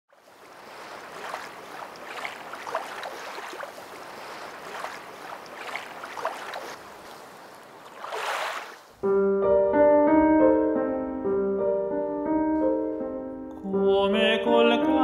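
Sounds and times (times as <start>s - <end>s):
small waves lapping: 0.1s - 9.0s.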